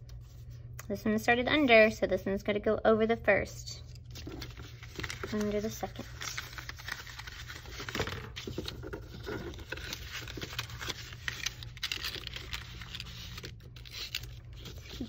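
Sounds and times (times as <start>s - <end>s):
paper rustling and scraping: 4.0s - 15.0s.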